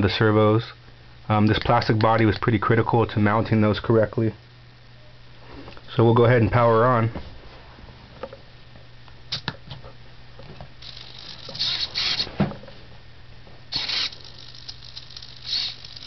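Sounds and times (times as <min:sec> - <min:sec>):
faint low hum: 0:00.0 - 0:16.0
servos whirring: 0:10.8 - 0:12.5, 0:13.7 - 0:16.0.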